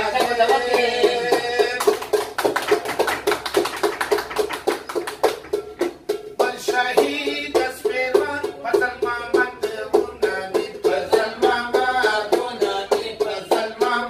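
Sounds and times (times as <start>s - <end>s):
man singing: 0.0s - 2.2s, 6.4s - 14.0s.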